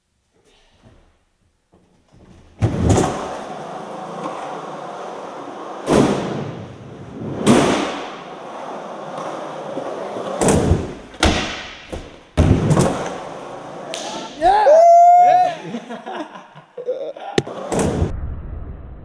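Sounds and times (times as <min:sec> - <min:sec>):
skateboard wheels rumbling: 0:02.5 - 0:11.1.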